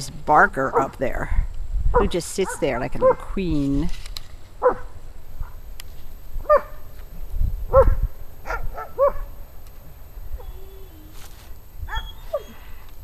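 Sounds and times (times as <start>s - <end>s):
dog barking: 2.0s - 3.3s, 4.6s - 5.6s, 6.4s - 6.8s, 7.7s - 9.3s.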